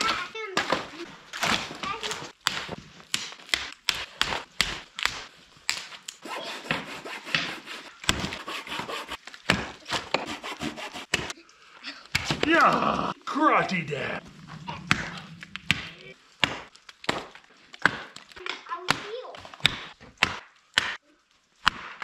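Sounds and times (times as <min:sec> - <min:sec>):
wood cracking and snapping: 0:00.0 - 0:06.2, 0:14.5 - 0:22.0.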